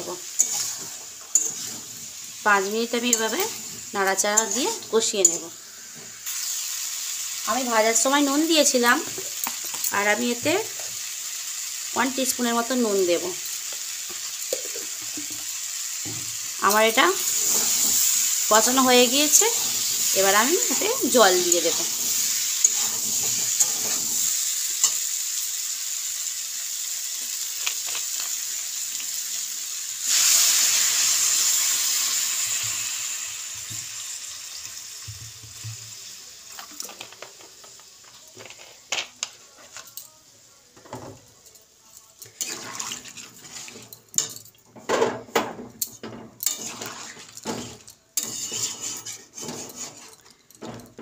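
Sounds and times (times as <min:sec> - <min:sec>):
vegetables sizzling in a pan: 0:00.0 - 0:51.0
metal spatula scraping and knocking: 0:00.4 - 0:02.0, 0:20.6 - 0:24.3, 0:42.3 - 0:51.0.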